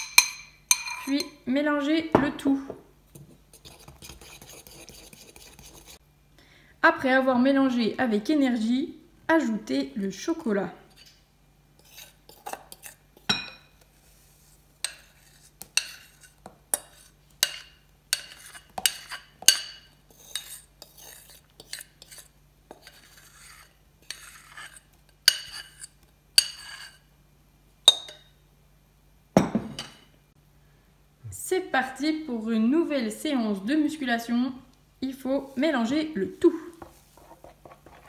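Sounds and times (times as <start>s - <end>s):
spoon clinking against glass: 0.0s - 1.2s, 27.9s - 28.3s
metal spoon scraping glass bowl: 0.0s - 1.4s, 11.8s - 13.3s, 14.8s - 27.0s.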